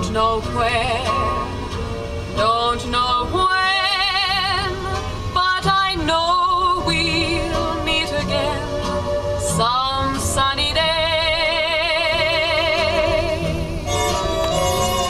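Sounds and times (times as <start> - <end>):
woman singing with vibrato: 0.0 - 1.6, 2.4 - 14.6
instrumental backing: 12.2 - 15.0.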